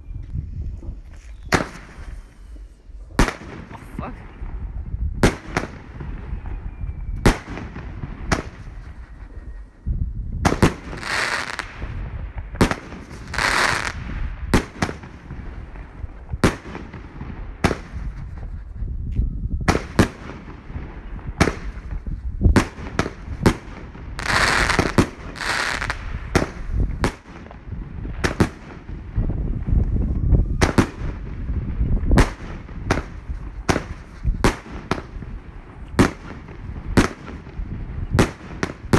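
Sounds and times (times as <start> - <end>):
fireworks bangs: 1.5 - 2.4, 3.2 - 9.5, 10.4 - 18.7, 19.6 - 38.9.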